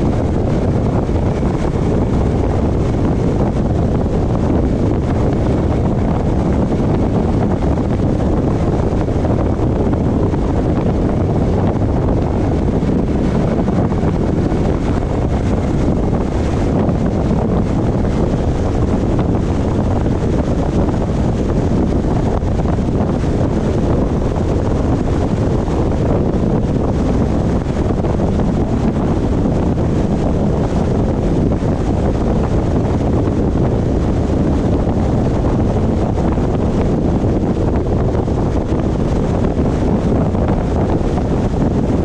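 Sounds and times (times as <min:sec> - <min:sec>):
wind on microphone: 0:00.0 - 0:42.0.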